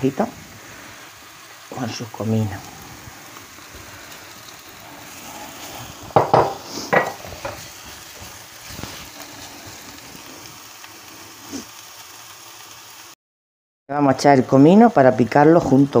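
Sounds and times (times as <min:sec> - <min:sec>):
onion sizzling in a frying pan: 0:00.0 - 0:13.2, 0:13.9 - 0:16.0
spatula scraping and knocking pan: 0:05.6 - 0:09.2.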